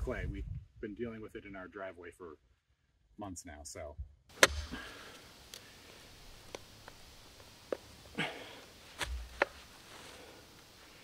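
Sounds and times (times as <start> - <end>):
dull thud of digger: 4.3 - 4.9.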